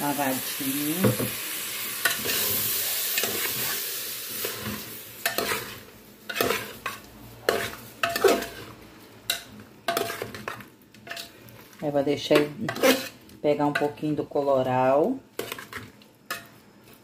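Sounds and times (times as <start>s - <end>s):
food sizzling in oil: 0.0s - 17.0s
utensil scraping pot: 4.4s - 11.4s, 12.3s - 14.1s, 15.3s - 16.5s.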